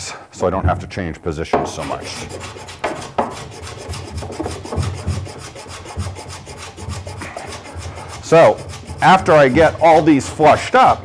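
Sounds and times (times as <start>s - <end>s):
block plane shaving wood: 1.6s - 11.0s.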